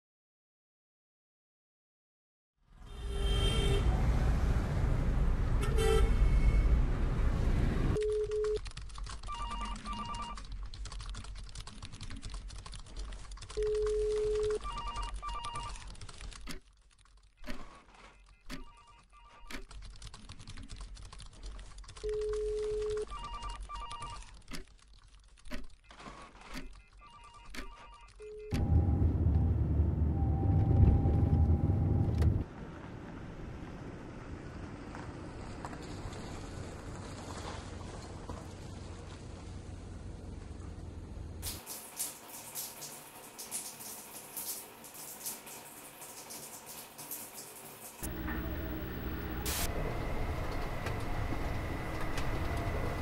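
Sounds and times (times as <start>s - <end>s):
street noise: 2.8s - 8.0s, 47.9s - 53.0s
keyboard typing clicks: 8.0s - 28.6s
telephones ringing: 9.2s - 10.4s, 13.6s - 15.8s, 48.0s - 49.7s
low beep: 28.2s - 32.2s.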